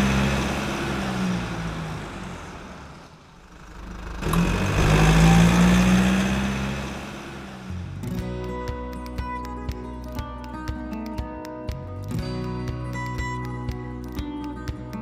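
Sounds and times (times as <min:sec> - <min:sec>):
car engine revving: 0:00.0 - 0:08.3.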